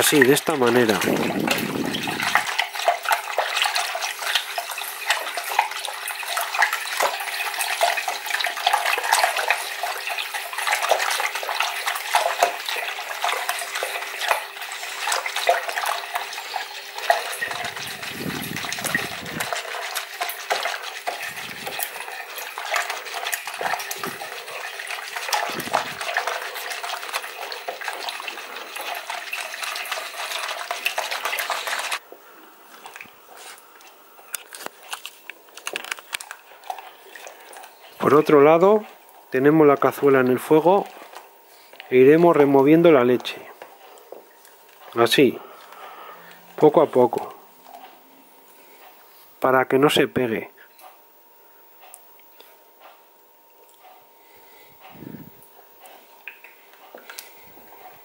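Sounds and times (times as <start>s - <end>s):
whisk clicking against a bowl: 0.0s - 32.0s
whisk sloshing in a bowl: 0.0s - 32.0s, 36.2s - 48.0s.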